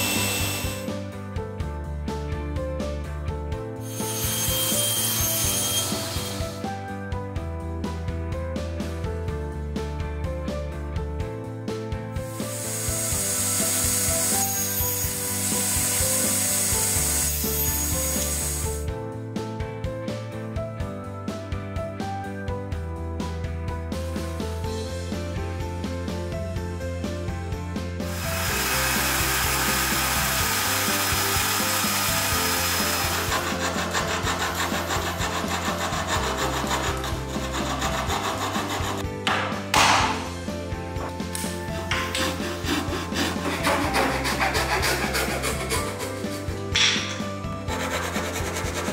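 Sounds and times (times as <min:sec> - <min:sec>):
table saw cutting wood: 0:00.0 - 0:01.0, 0:03.8 - 0:06.8, 0:12.2 - 0:18.9, 0:28.0 - 0:48.9.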